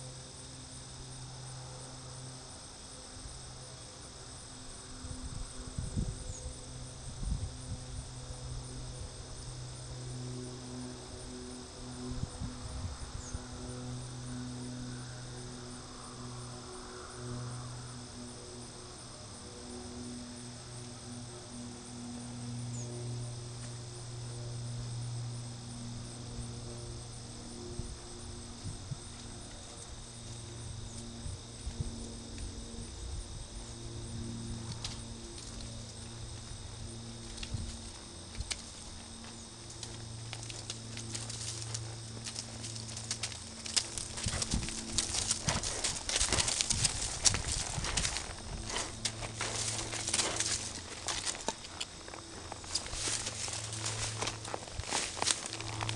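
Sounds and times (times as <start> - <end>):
crickets trilling: 0.0 - 55.9
low hum: 0.0 - 55.9
hoofbeats on sand: 41.0 - 55.9.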